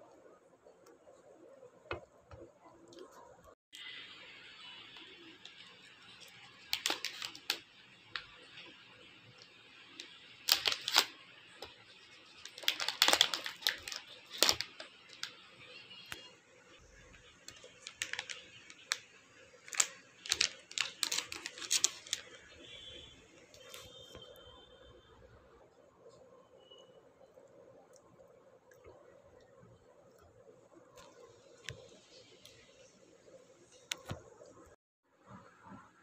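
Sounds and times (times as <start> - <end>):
plastic wrapper crackling: 4.9 - 15.5, 17.0 - 24.2.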